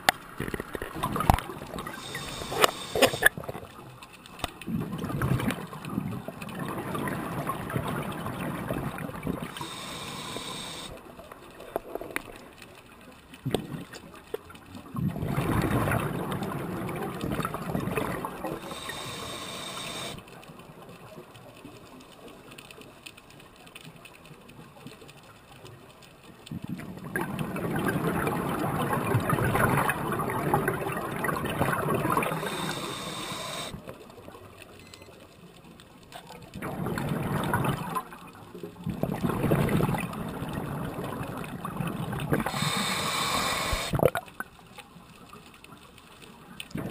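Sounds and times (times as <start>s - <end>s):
exhaled bubbles underwater: 0.0s - 3.8s, 4.6s - 11.2s, 14.8s - 20.2s, 26.5s - 33.9s, 36.5s - 44.5s, 46.7s - 46.9s
diver breathing through regulator: 2.0s - 3.3s, 9.5s - 11.0s, 18.6s - 20.2s, 32.1s - 33.8s, 42.4s - 44.0s.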